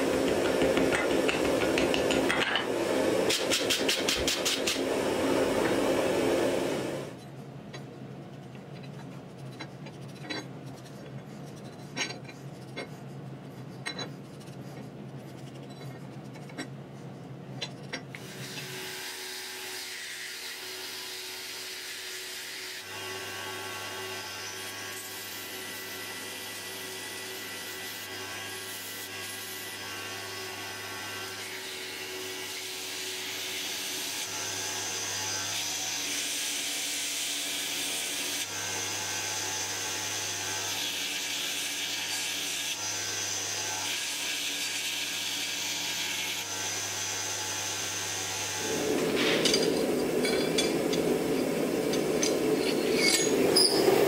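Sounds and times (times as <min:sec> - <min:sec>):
steel grinding hiss: 0:48.6 - 0:54.0.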